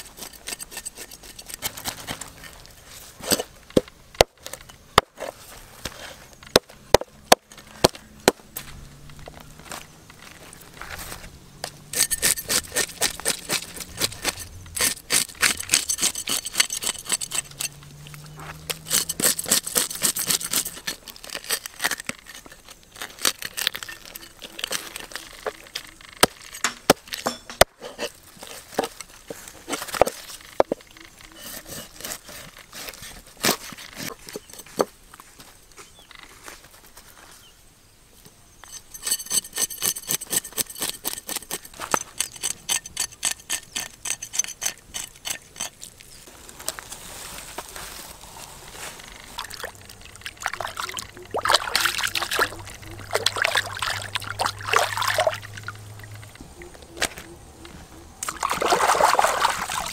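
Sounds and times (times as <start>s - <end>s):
knife scraping fish scales: 0.0s - 2.6s, 11.9s - 17.8s, 18.6s - 28.6s, 31.3s - 34.7s, 38.6s - 45.9s.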